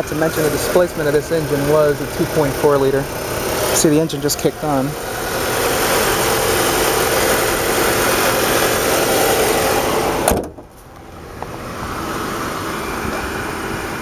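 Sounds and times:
car engine running: 0.0 - 14.0
hood shutting thud: 9.9 - 11.6.

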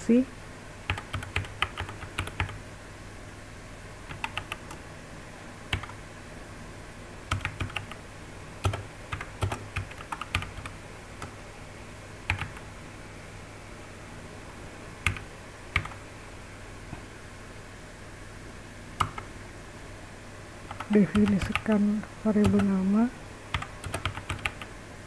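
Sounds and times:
faint low hum: 0.0 - 25.0
computer keyboard typing: 0.9 - 2.6, 4.1 - 4.8, 5.7 - 6.0, 7.3 - 8.0, 8.6 - 11.4, 12.2 - 12.7, 15.0 - 16.0, 19.0 - 19.3, 20.7 - 22.8, 23.5 - 24.7.

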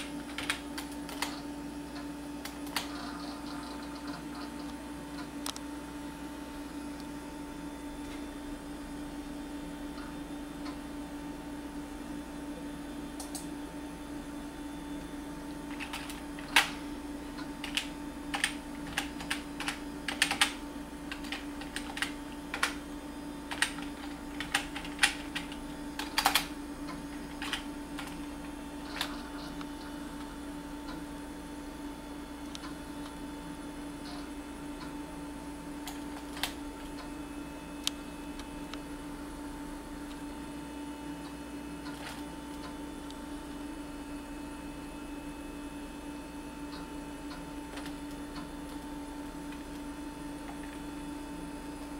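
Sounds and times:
computer keyboard typing: 0.0 - 4.7, 15.7 - 16.8, 17.4 - 22.8, 23.4 - 29.9, 35.8 - 37.1, 47.3 - 50.8
steady low hum: 0.0 - 51.9.

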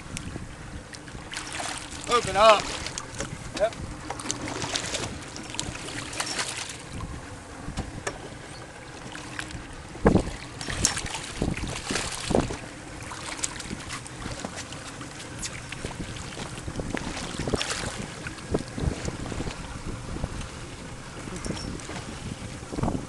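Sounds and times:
wind on microphone: 0.0 - 23.0
fish splashing in water: 1.0 - 3.2, 4.2 - 6.9, 9.0 - 19.5.

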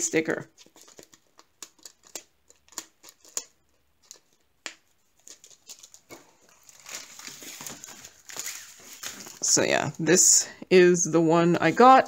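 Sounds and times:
plastic film rustling: 5.0 - 10.0.

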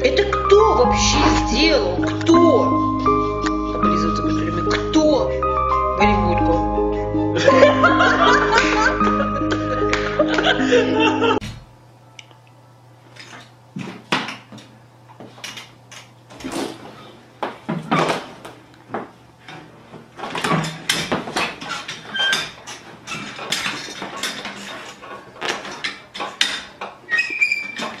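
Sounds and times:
chair clattering on tiled floor: 13.2 - 28.0.

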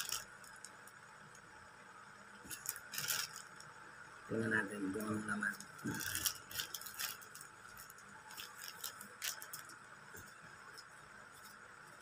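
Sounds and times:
plastic pouch crinkling: 0.0 - 1.0, 2.4 - 3.8, 5.4 - 10.3.

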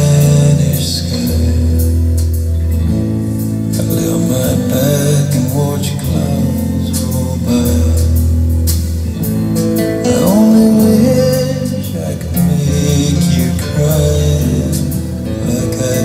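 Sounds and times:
song over loudspeakers: 3.7 - 8.4, 9.2 - 16.0.

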